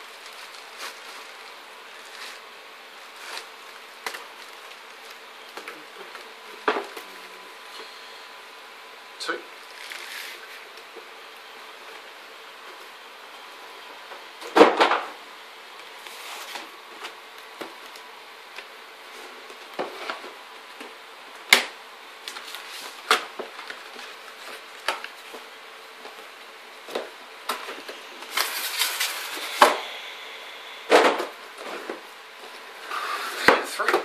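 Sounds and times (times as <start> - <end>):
packaging rustling: 0.0 - 2.5, 27.5 - 29.7
faint steady hum: 0.0 - 34.0.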